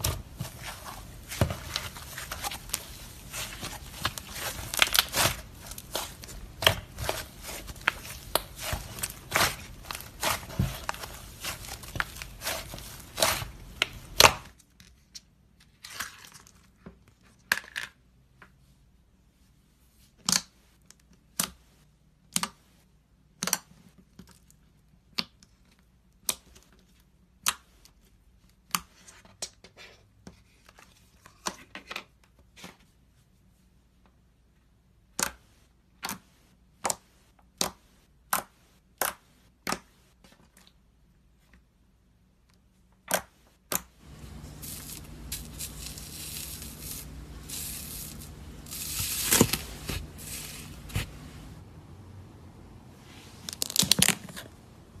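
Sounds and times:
slime crackling squish: 0:00.0 - 0:14.4.

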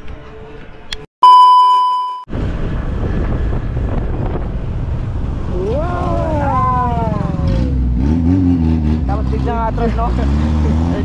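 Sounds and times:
bright bell ding: 0:01.2 - 0:02.3
wind on microphone: 0:02.3 - 0:08.0
street traffic: 0:02.3 - 0:11.0
man exclaiming: 0:05.5 - 0:07.8.

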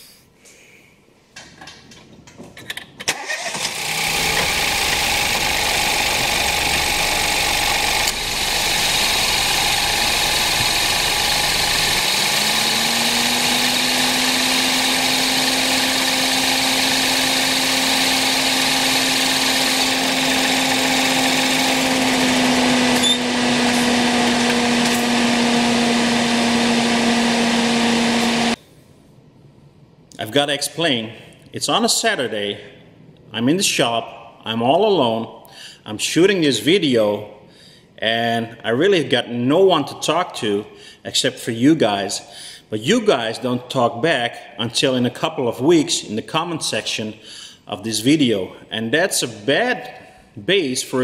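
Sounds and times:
loud steady engine noise: 0:03.6 - 0:28.6
rising hum of compressor and fan: 0:03.8 - 0:28.6.

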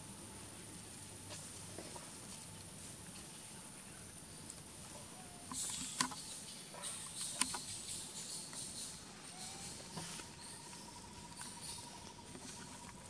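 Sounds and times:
high insect hiss: 0:00.0 - 0:13.0
rustling and crackling: 0:08.5 - 0:13.0.

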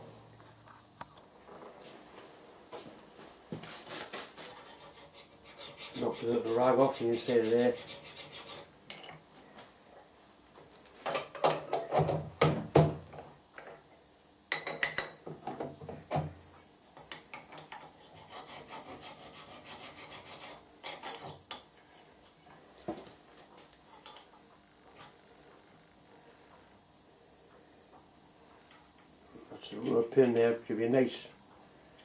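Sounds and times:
hand file rasping on metal: 0:04.4 - 0:08.7, 0:17.8 - 0:21.3.

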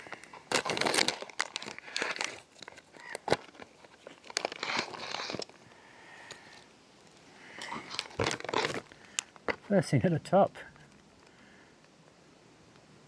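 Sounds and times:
plastic crinkling: 0:00.0 - 0:05.6, 0:06.2 - 0:09.7
plastic pouch tearing open: 0:00.0 - 0:05.6, 0:07.7 - 0:09.6.

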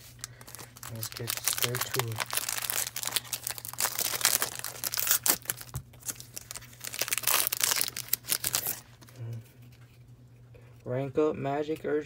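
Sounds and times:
foil wrapper crinkling: 0:00.0 - 0:09.1.

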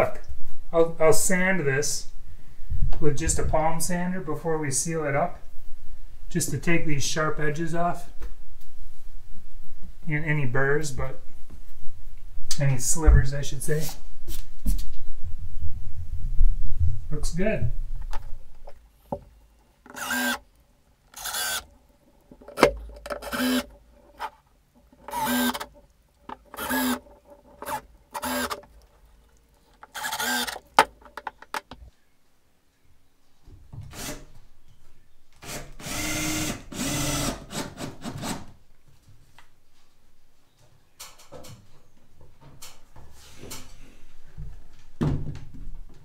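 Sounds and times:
cordless drill driving screws: 0:19.9 - 0:20.4, 0:21.2 - 0:21.7, 0:23.2 - 0:24.3, 0:25.0 - 0:25.7, 0:26.5 - 0:28.7, 0:29.8 - 0:30.8, 0:35.4 - 0:38.5.

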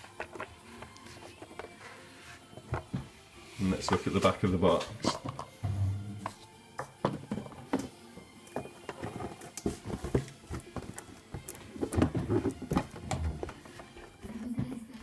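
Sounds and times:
plastic parts tapping and clicking: 0:04.7 - 0:05.6.

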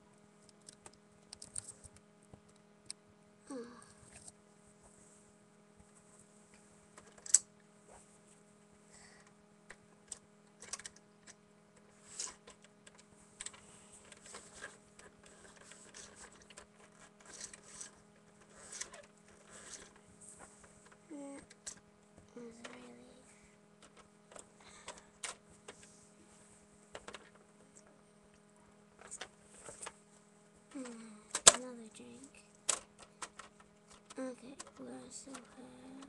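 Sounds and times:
steady low hum: 0:00.0 - 0:36.0
plastic toys clicking and scraping: 0:07.0 - 0:07.4, 0:10.1 - 0:20.0, 0:20.8 - 0:21.8, 0:23.8 - 0:25.9, 0:26.9 - 0:27.6, 0:29.0 - 0:30.0, 0:30.7 - 0:36.0.

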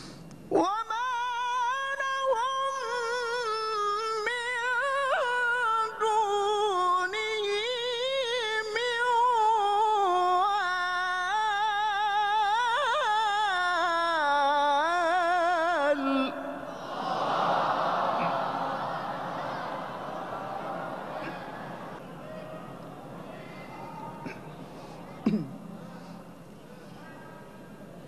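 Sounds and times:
man reciting melodically: 0:00.5 - 0:16.7.

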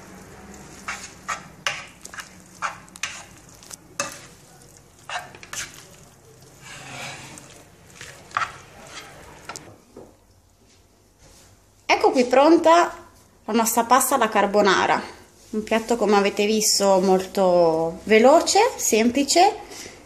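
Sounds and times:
tongs tossing spaghetti in pan: 0:00.0 - 0:09.7.

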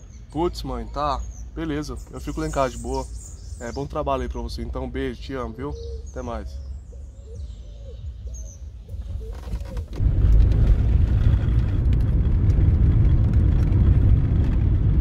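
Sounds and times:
bird calling: 0:00.0 - 0:10.0
car cabin driving rumble: 0:08.0 - 0:15.0.

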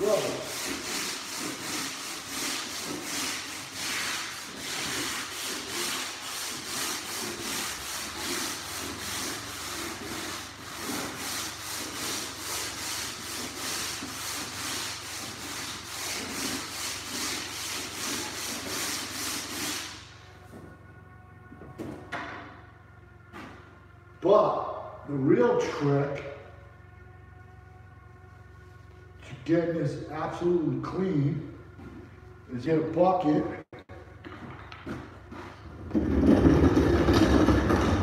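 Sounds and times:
scrub brush scrubbing wet wood floor: 0:00.0 - 0:20.2.

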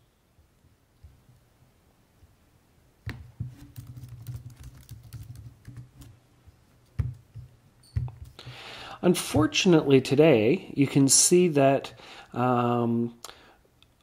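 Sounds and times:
keyboard typing: 0:03.5 - 0:06.1.

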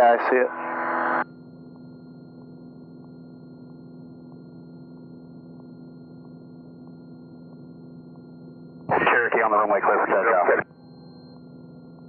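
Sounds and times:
electronic whine: 0:00.0 - 0:11.9
muffled aircraft engine drone: 0:07.2 - 0:10.6.

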